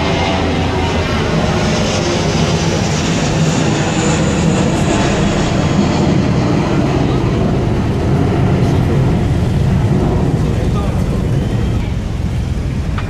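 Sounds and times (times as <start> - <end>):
motor traffic noise: 0.0 - 13.0.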